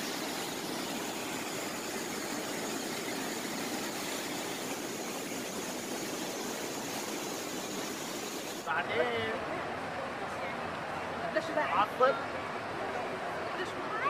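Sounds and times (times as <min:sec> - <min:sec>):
waterfall rushing: 0:00.0 - 0:08.7.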